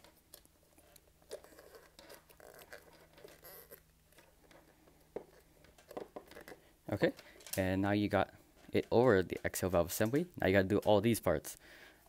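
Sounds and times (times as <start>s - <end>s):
faint rubbing of rubber: 0.0s - 7.1s.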